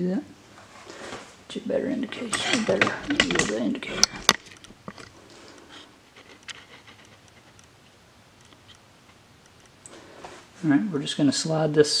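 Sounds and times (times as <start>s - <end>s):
faint handling clicks and taps: 2.1s - 10.0s.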